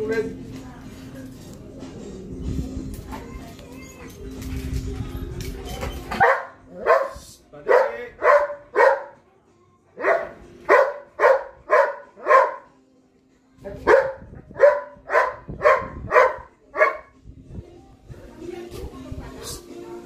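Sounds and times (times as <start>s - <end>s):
dog barking: 6.1s - 9.2s, 10.0s - 12.8s, 13.6s - 17.2s.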